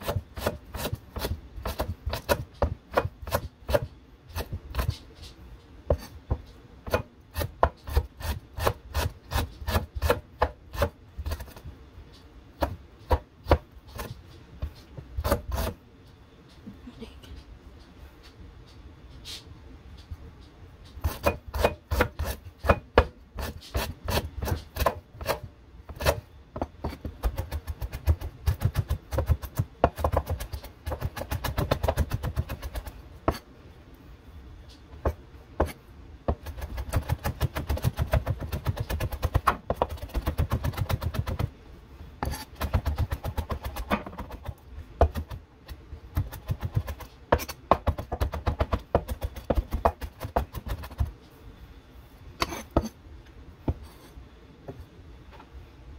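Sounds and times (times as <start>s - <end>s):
knife chopping on cutting board: 45.0s - 45.4s, 46.1s - 51.1s.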